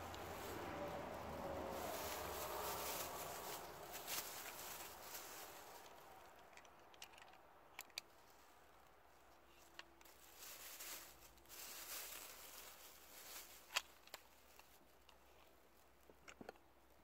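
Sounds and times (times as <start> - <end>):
plastic bag crinkling: 0.0 - 7.2, 10.0 - 14.8.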